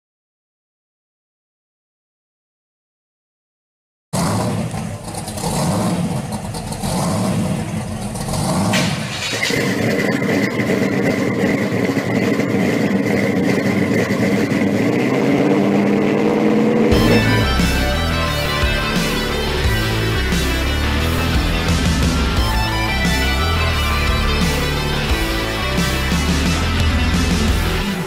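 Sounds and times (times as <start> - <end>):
supercharged car engine running: 4.2 - 28.0
high whine: 9.3 - 28.0.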